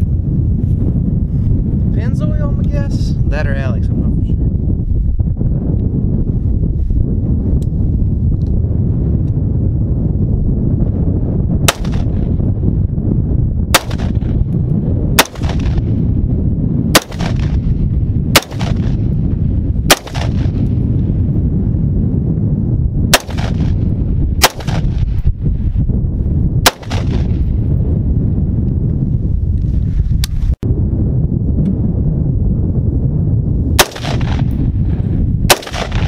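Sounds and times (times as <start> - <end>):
wind rumble on microphone: 0.0 - 36.0
rifle shots: 11.7 - 12.2, 13.7 - 14.4, 15.2 - 16.0, 16.9 - 17.7, 18.3 - 19.0, 19.9 - 20.6, 23.1 - 23.8, 24.4 - 25.1, 26.6 - 27.5, 33.8 - 34.6, 35.5 - 36.0.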